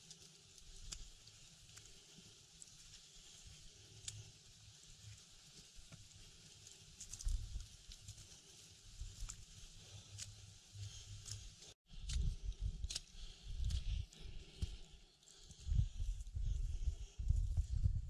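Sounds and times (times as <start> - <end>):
twigs crackling underfoot: 0.0 - 17.8
wind buffeting microphone: 15.5 - 18.0.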